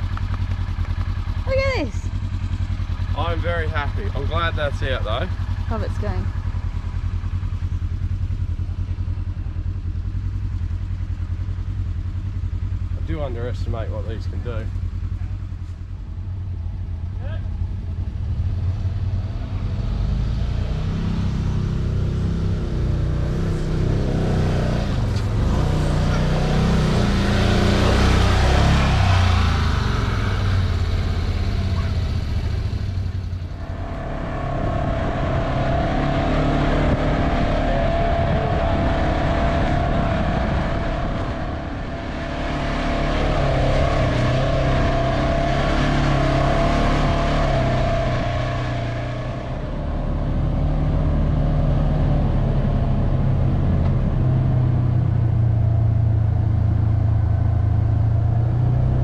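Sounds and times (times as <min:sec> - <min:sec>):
buggy engine revving: 0:00.0 - 0:59.0
steady whine: 0:22.6 - 0:50.3.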